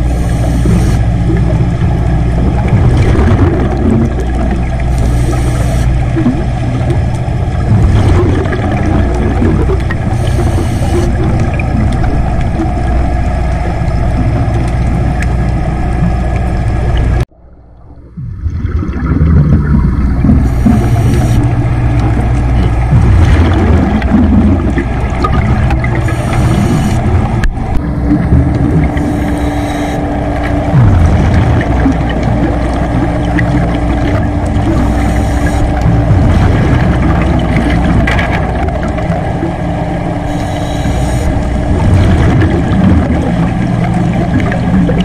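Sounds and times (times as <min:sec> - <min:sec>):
regulator exhale bubbles hissing: 0:00.0 - 0:01.1, 0:02.4 - 0:06.8, 0:07.6 - 0:12.6, 0:18.5 - 0:27.4, 0:28.6 - 0:30.1, 0:30.7 - 0:38.0, 0:40.2 - 0:45.0
underwater boat engine hum: 0:00.0 - 0:45.0.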